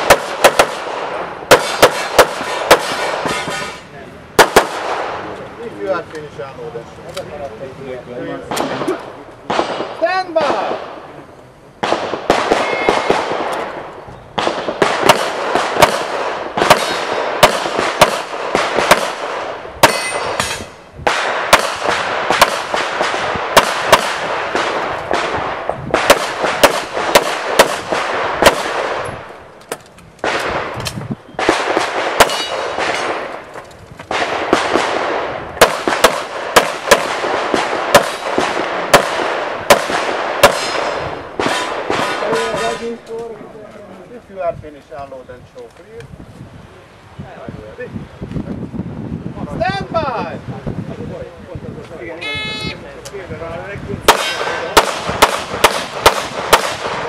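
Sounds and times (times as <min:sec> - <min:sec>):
handgun shots: 0:00.0 - 0:00.9, 0:01.5 - 0:03.8, 0:14.4 - 0:25.4, 0:26.0 - 0:29.1, 0:29.7 - 0:33.4, 0:35.6 - 0:42.8, 0:54.1 - 0:57.0
steady background noise: 0:00.0 - 0:57.0.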